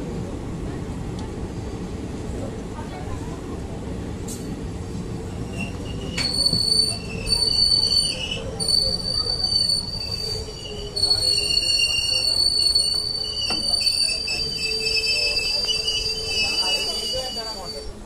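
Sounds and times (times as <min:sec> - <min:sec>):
train rumbling: 0:00.0 - 0:18.0
wheels squealing on rails: 0:05.3 - 0:18.0.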